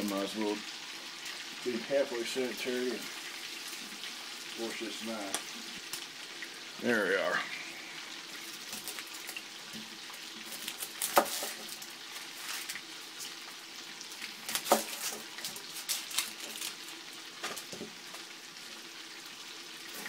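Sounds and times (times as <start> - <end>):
onion crackling under knife: 8.3 - 18.3.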